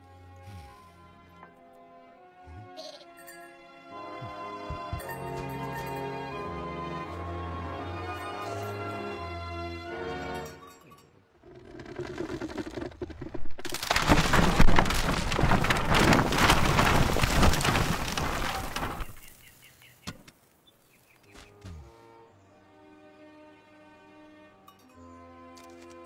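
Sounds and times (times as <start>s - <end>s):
timber cracking: 11.4s - 19.4s
crash of splintering wood: 11.6s - 19.4s.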